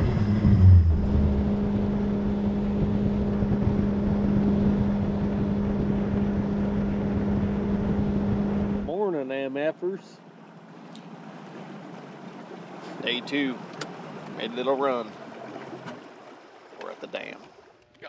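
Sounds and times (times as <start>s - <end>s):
deep low rumble: 0.0s - 8.9s
outboard motor running: 0.0s - 17.8s.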